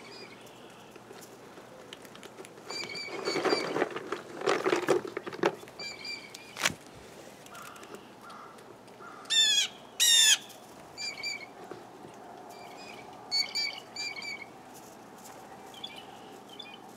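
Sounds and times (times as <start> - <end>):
blue jays calling: 7.5 - 11.7, 12.5 - 14.8.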